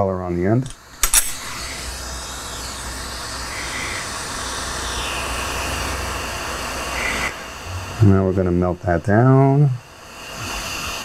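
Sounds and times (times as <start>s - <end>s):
sharp click: 0.6s - 1.6s
torch flame hissing: 0.7s - 11.0s.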